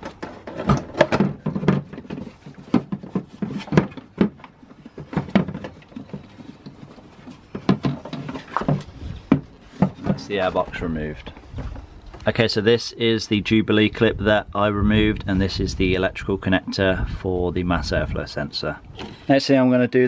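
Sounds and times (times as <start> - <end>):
plastic housing knocking and scraping: 0.0 - 12.3.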